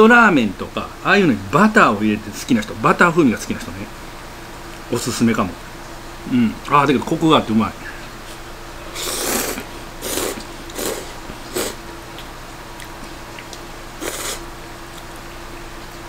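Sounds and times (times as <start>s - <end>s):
person slurping noodles: 8.9s - 11.8s, 14.0s - 14.5s.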